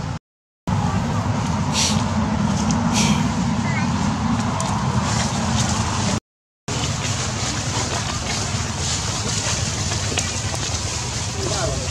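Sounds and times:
outdoor rumble and hiss: 0:00.0 - 0:11.9.

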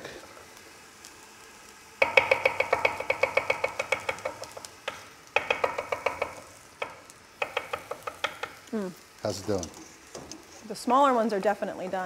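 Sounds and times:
knife chopping on wooden board: 0:02.0 - 0:08.6.

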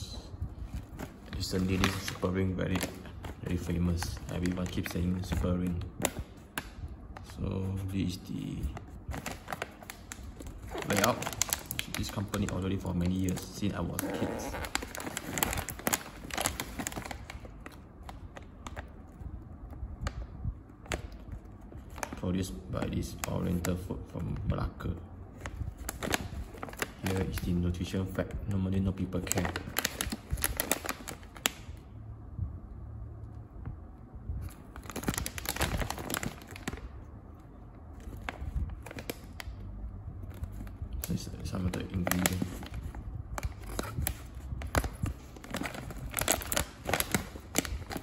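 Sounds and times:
plastic snack bag crinkling: 0:00.6 - 0:19.1, 0:25.4 - 0:27.8, 0:28.8 - 0:31.8, 0:34.5 - 0:48.0.

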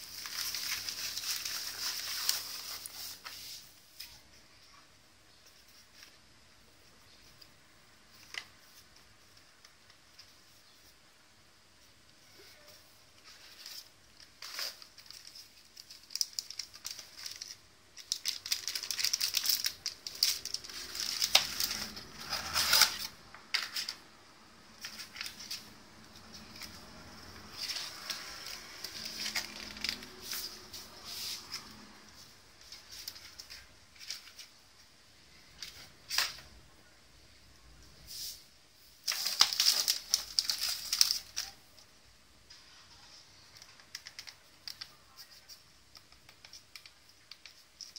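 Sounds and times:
cardboard and packaging rustling: 0:00.0 - 0:04.7, 0:12.2 - 0:36.6, 0:38.9 - 0:47.9.

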